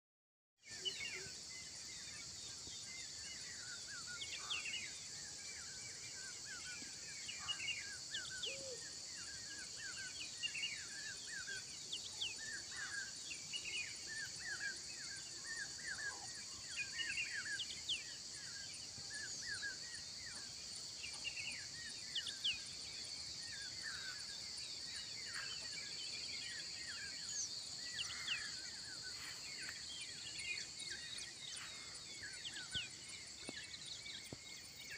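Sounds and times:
insects chorus: 0.6s - 34.9s.

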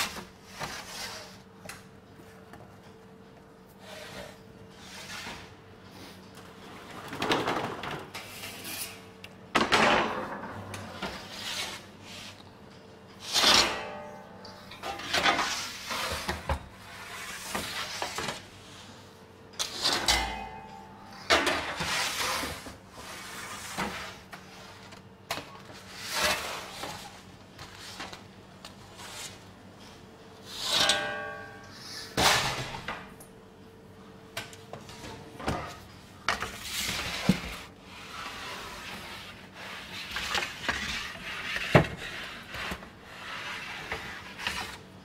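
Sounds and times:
metal peel scraping oven floor: 3.8s - 5.5s, 6.7s - 12.4s, 13.2s - 18.9s, 19.6s - 24.8s, 25.8s - 28.2s, 30.4s - 33.0s, 36.4s - 44.8s
metallic clanks: 19.6s - 21.6s.

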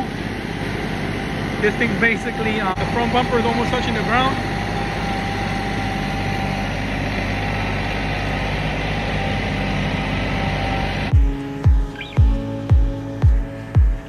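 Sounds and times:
diesel engine running: 0.0s - 14.0s
music with heavy bass beat: 11.1s - 14.0s.

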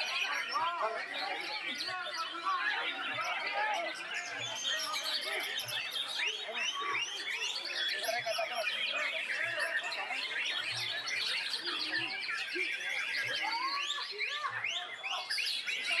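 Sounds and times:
songbirds singing: 0.0s - 16.0s.

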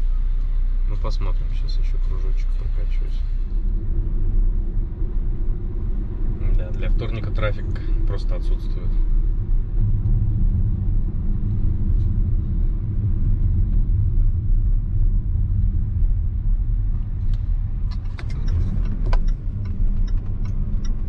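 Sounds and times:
engine and tyre rumble: 0.0s - 21.0s
light clicks and ticks: 17.3s - 21.0s.

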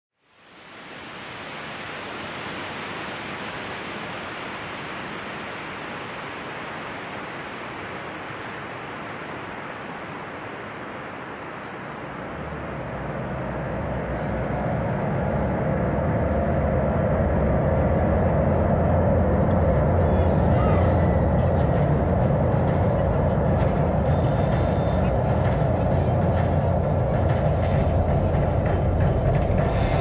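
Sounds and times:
static-like electronic noise: 6.5s - 12.6s, 14.0s - 16.8s, 19.8s - 21.2s, 23.5s - 30.0s
low drone: 11.6s - 30.0s.

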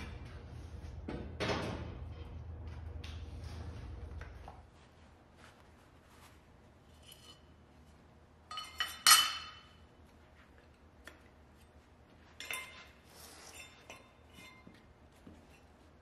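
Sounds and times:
metal tools clinking on steel: 8.5s - 9.8s, 12.3s - 14.7s.

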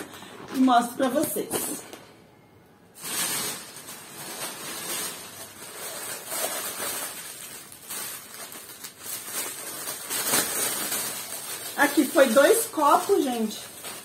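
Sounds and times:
plastic bags crinkling: 2.9s - 14.0s.

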